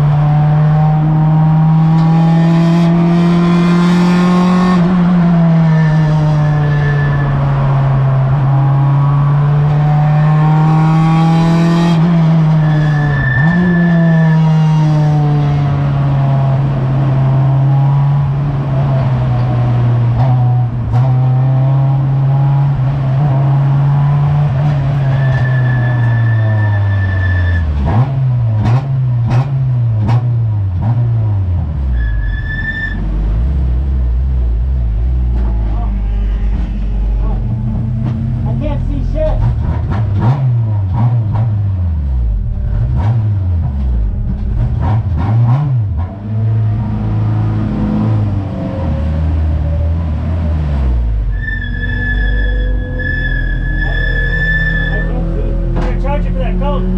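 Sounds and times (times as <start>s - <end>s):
racing car engine: 0.0s - 56.9s
short high-pitched squeals: 51.3s - 55.2s.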